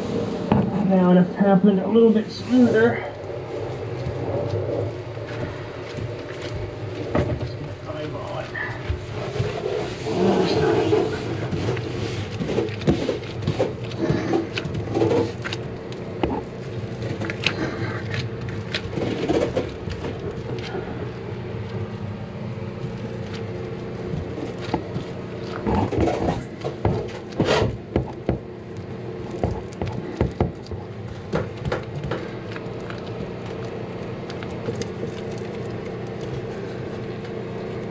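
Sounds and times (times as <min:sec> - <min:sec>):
steady low hum: 0:00.0 - 0:37.9
hands tapping and rubbing fiberglass: 0:08.9 - 0:20.8, 0:22.8 - 0:37.9.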